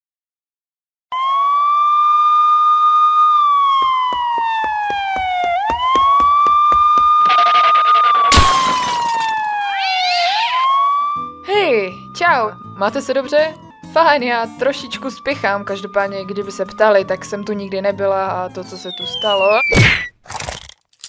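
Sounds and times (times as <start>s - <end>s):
police siren wailing: 1.1s - 19.8s
quick run of knocks: 3.7s - 7.4s.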